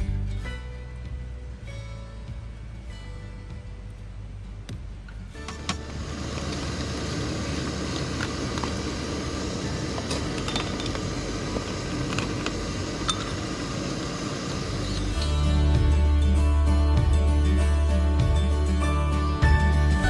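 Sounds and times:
steady rushing noise: 0:04.7 - 0:17.4.

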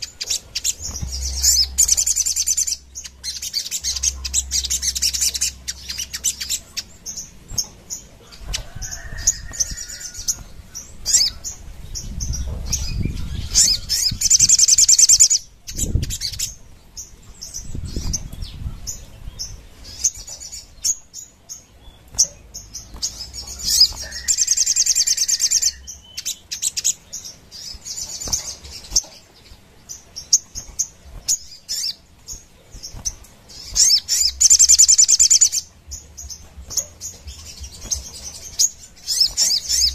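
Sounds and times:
songbird chirping and trilling: 0:00.0 - 0:39.9
bird fluttering in cage: 0:00.3 - 0:02.1.

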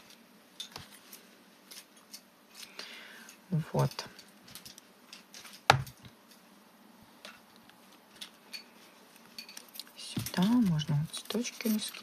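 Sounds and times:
light paper rustles: 0:09.6 - 0:12.0.

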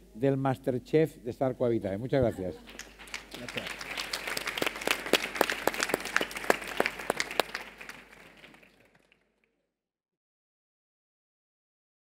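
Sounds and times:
audience applauding: 0:02.6 - 0:09.3.

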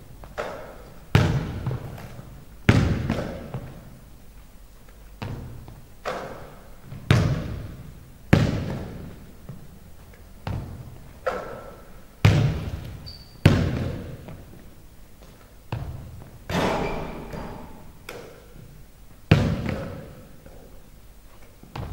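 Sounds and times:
basketball thudding on wooden floor: 0:10.4 - 0:10.8.

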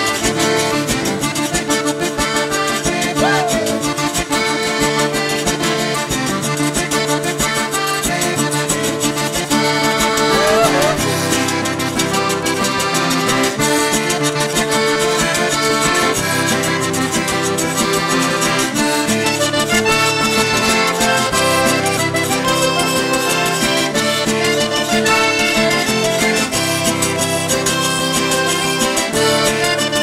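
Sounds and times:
button accordion melody: 0:00.0 - 0:30.0
strummed acoustic guitar: 0:00.0 - 0:30.0
rubboard scraping rhythm: 0:03.1 - 0:04.6, 0:09.1 - 0:13.5.

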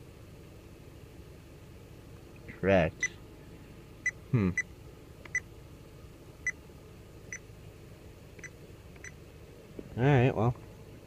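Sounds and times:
short vocal sound: 0:04.3 - 0:04.6.

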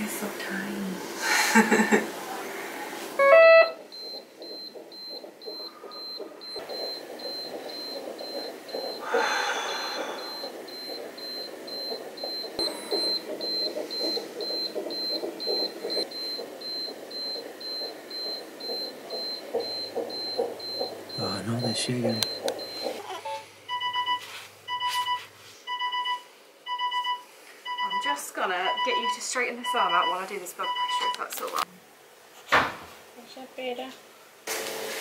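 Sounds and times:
high alarm beeps: 0:03.2 - 0:09.0, 0:10.2 - 0:31.2.

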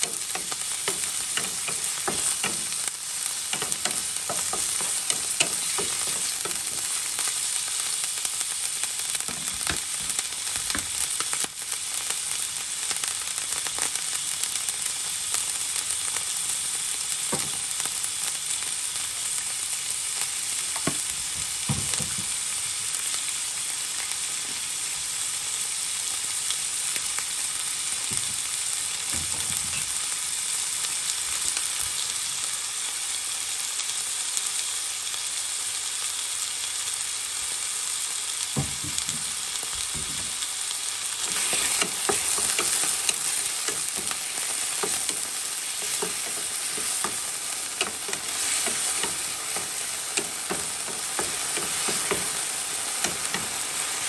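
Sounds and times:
meat sizzling in hot oil: 0:00.0 - 0:54.0
spatula knocking against pan: 0:00.1 - 0:02.8, 0:03.5 - 0:07.0.

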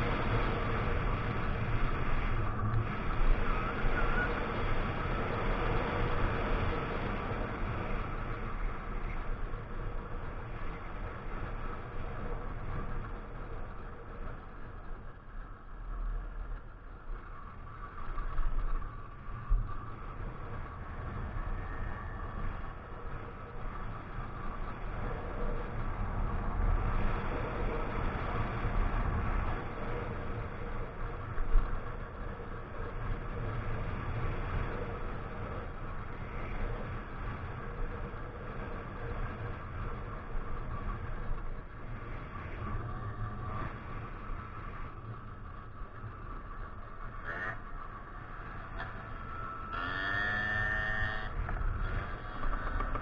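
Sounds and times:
wind rumble on microphone: 0:00.0 - 0:53.0
motorcycle engine running: 0:44.5 - 0:53.0.

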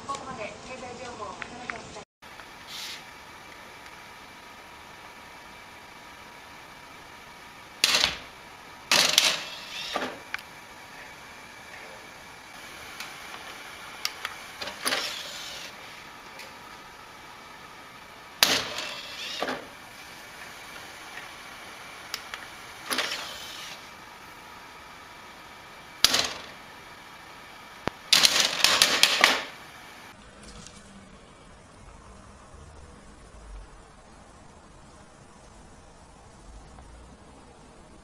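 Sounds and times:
steady hum: 0:00.0 - 0:38.0
disc tray whirring: 0:02.3 - 0:38.0.

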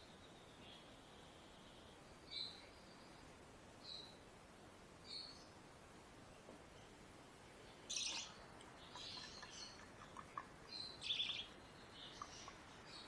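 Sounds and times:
parakeet chick chirping: 0:09.0 - 0:12.6.

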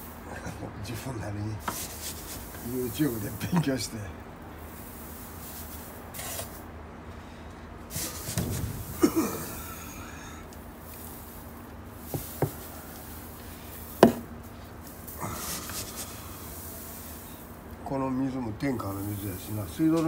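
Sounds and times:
rustling in rice husks: 0:00.0 - 0:20.0
sharp knocks on wood: 0:14.0 - 0:14.3.

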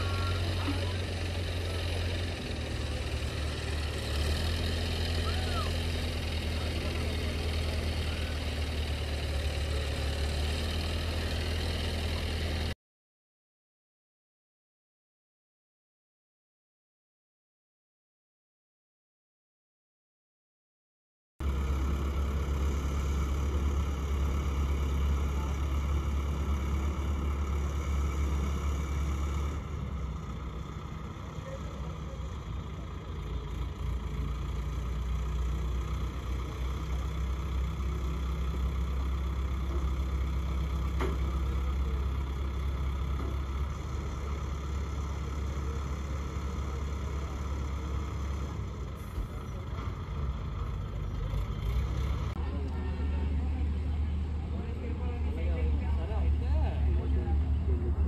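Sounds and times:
truck engine running: 0:00.0 - 0:12.8, 0:21.4 - 0:58.0.

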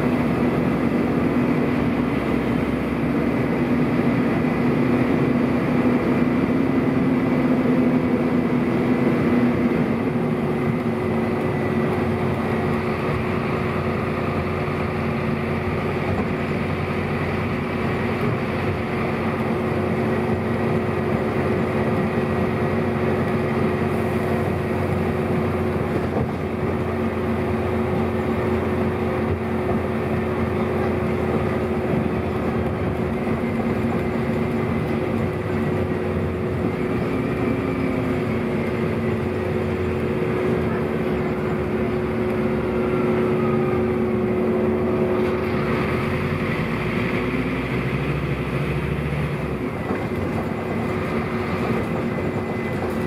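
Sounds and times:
bus diesel engine droning: 0:00.0 - 0:53.0.

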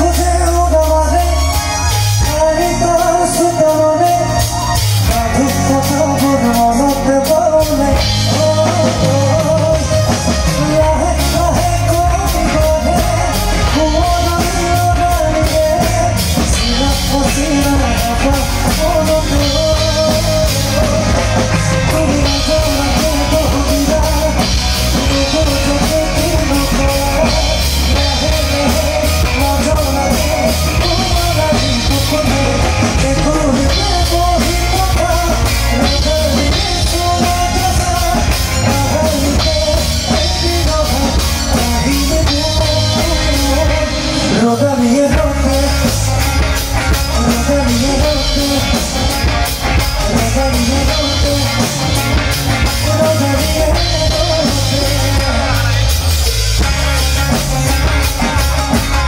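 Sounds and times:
drum kit: 0:00.0 - 0:59.0
electric bass: 0:00.0 - 0:59.0
man singing: 0:00.0 - 0:59.0.

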